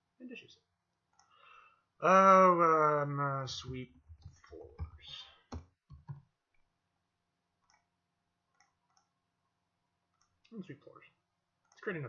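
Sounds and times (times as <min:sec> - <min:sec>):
faint mouse clicks: 0:01.1 - 0:01.4, 0:07.6 - 0:07.9, 0:08.5 - 0:09.2
keyboard typing: 0:03.6 - 0:06.3.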